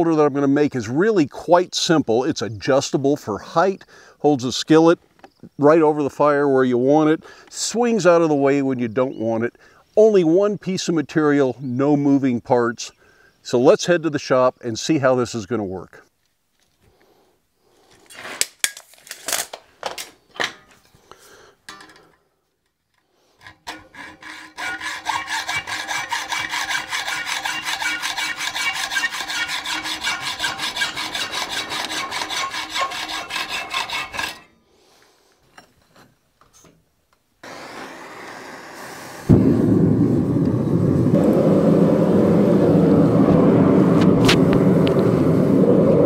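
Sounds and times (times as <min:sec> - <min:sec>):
hacksaw cutting steel: 0:23.4 - 0:34.6
gas burner rushing: 0:37.4 - 0:46.0.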